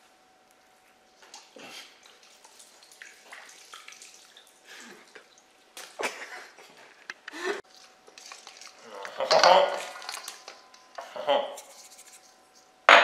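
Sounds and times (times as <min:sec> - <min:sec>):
water splashing and sloshing: 0:00.9 - 0:10.7.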